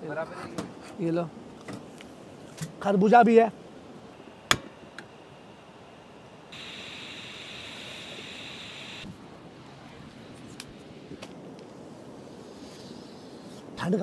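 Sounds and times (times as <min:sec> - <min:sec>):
steady hiss: 0:05.2 - 0:14.0.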